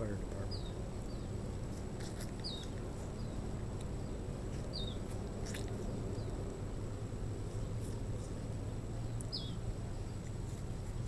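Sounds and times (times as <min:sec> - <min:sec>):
steady low rumble: 0:00.0 - 0:11.0
small bird chirping: 0:00.4 - 0:06.6, 0:07.4 - 0:11.0
apple being chewed: 0:03.8 - 0:06.0.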